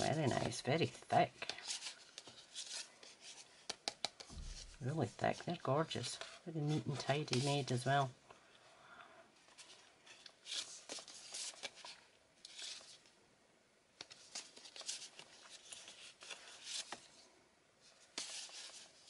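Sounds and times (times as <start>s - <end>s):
paper envelopes rustling: 9.4s - 13.1s, 14.0s - 19.0s.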